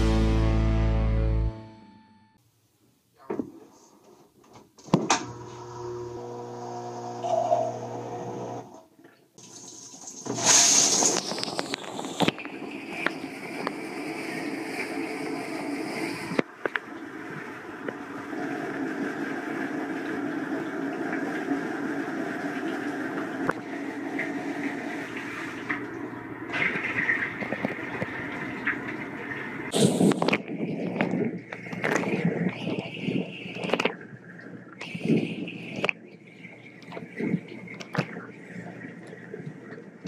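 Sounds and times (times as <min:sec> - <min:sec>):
dishwasher pump motor humming: 0:05.1 - 0:08.8
water spraying and splashing: 0:09.4 - 0:16.4.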